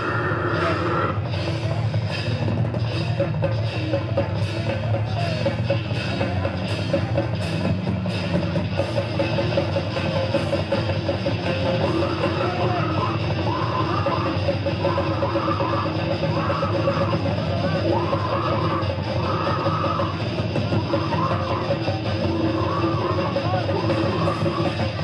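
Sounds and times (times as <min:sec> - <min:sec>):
distorted electric guitars: 0:00.0 - 0:25.0
drum kit: 0:00.0 - 0:25.0.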